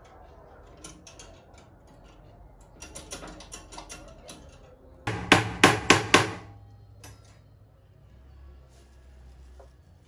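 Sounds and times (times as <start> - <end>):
loud hammer blows: 5.1 - 6.5.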